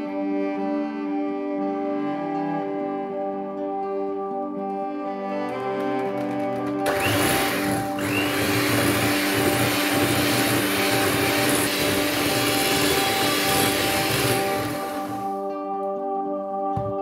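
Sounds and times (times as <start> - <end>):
soft background music: 0.0 - 8.0, 12.9 - 17.0
electric hand mixer whining: 6.6 - 15.4.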